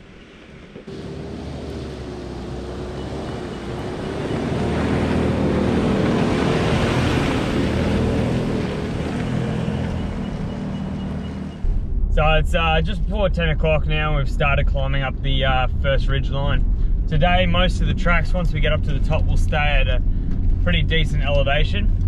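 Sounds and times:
vehicle engine driving past: 0.2 - 14.9.

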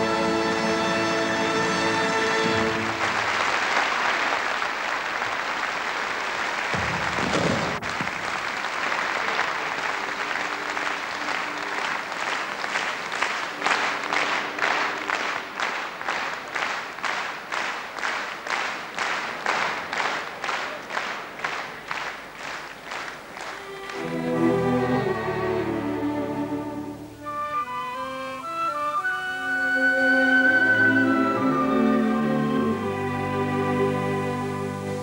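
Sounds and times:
audience applauding: 2.4 - 26.6.

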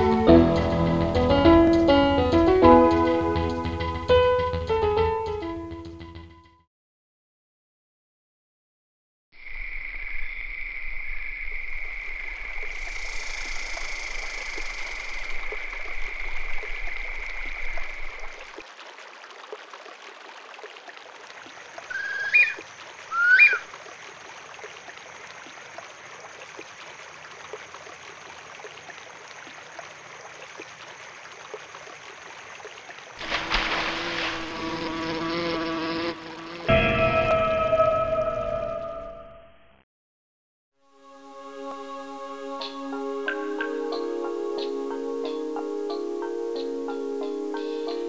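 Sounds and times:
running stream water: 12.0 - 36.7
steady high-pitched tone: 36.7 - 39.6.

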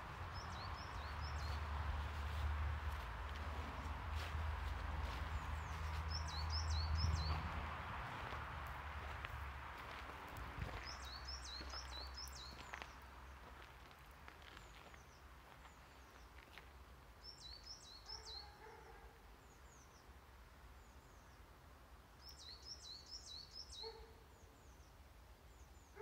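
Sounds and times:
songbird high chirps: 0.2 - 2.4, 5.0 - 7.5, 10.7 - 13.0, 17.2 - 20.2, 22.2 - 26.0.

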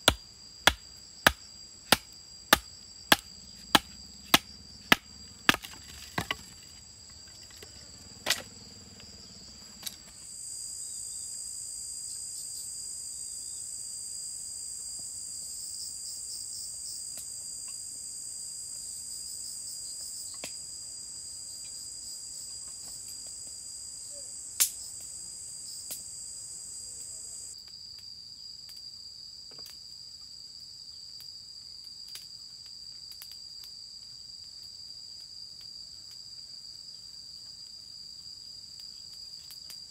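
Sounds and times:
louder insect chirring: 0.0 - 14.7, 15.6 - 27.6
insects chirring: 0.0 - 39.9.

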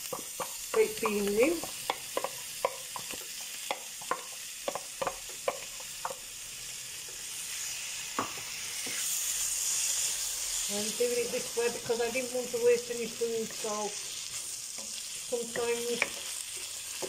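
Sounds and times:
wooden spatula stirring: 0.0 - 6.2
vegetables sizzling in a pan: 0.0 - 17.0.

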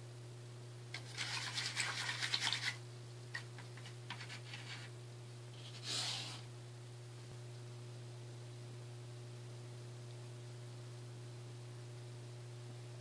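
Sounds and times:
low electrical hum: 0.0 - 13.0
scratchy rubbing and rustling: 1.0 - 2.8, 3.4 - 4.9, 5.6 - 6.5.

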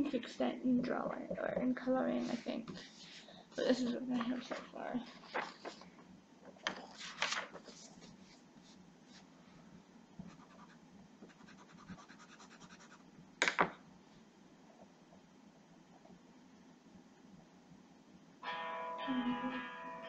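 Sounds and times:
paper handled on wooden table: 6.7 - 8.2
pencil scratching on paper: 10.3 - 13.0.

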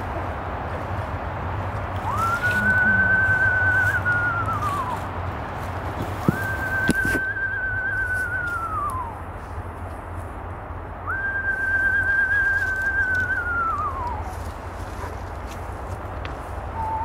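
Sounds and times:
person whistling owl call: 2.0 - 5.1, 6.2 - 9.2, 11.0 - 14.4, 16.7 - 17.0.

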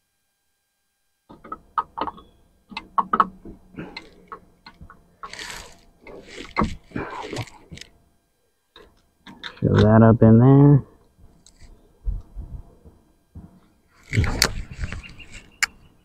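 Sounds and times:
rustling scrapes: 5.2 - 7.9, 13.9 - 15.6.

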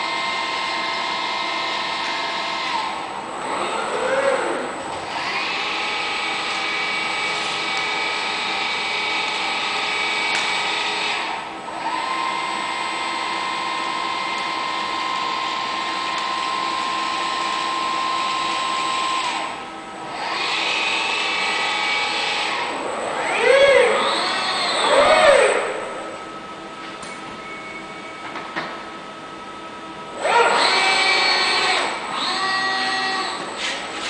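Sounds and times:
robot arm servo motors whining: 3.4 - 5.4, 20.2 - 25.8, 30.2 - 34.0.

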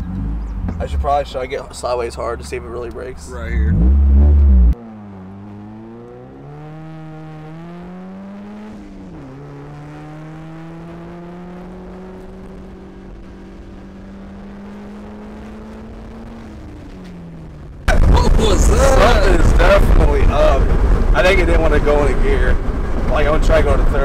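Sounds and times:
car engine accelerating: 0.0 - 24.0
loud low rumble: 3.2 - 4.8, 17.7 - 24.0.

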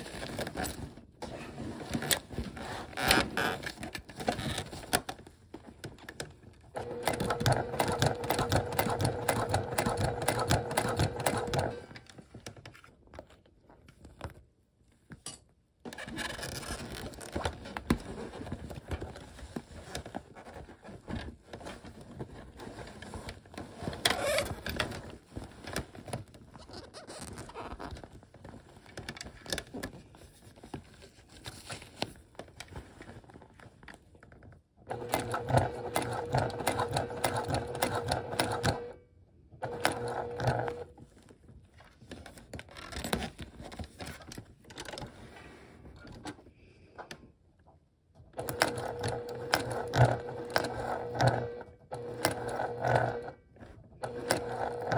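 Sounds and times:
clicks and rustles of handling: 0.0 - 38.9, 39.6 - 54.9
sewing machine stitching: 6.7 - 12.1, 23.9 - 25.0, 34.9 - 39.0, 39.6 - 41.0, 48.4 - 54.9.

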